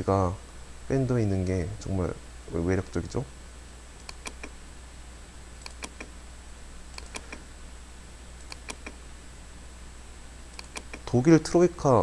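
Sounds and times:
low electrical hum: 0:00.0 - 0:12.0
computer mouse clicking: 0:04.0 - 0:04.6, 0:05.6 - 0:06.1, 0:06.9 - 0:07.4, 0:08.4 - 0:09.0, 0:10.5 - 0:11.1.

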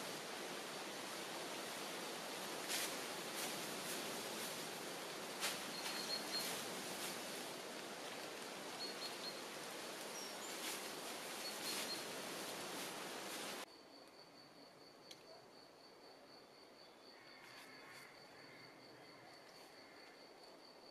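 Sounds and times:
dry grass rustling and crackling: 0:00.0 - 0:13.6
steady outdoor hiss: 0:00.0 - 0:20.9.

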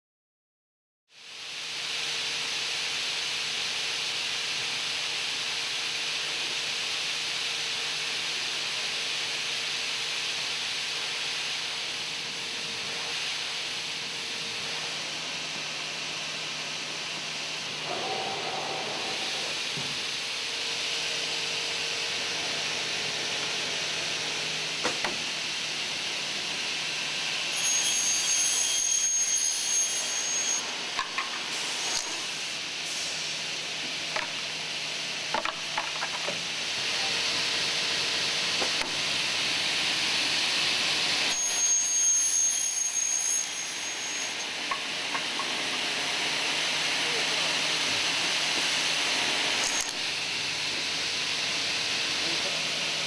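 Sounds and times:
saw running with a hiss: 0:01.2 - 0:35.7, 0:36.4 - 0:53.0
high whine of blades cutting: 0:17.6 - 0:24.3, 0:27.4 - 0:31.0, 0:40.8 - 0:44.6.

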